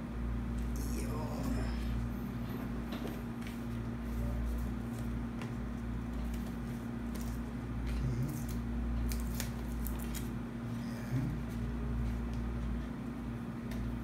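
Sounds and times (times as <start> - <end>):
low electrical hum: 0.0 - 14.0.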